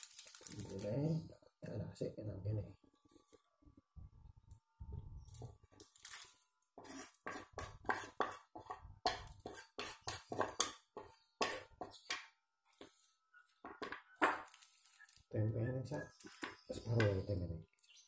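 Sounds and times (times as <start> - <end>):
knife scraping cutting board: 6.8 - 12.0.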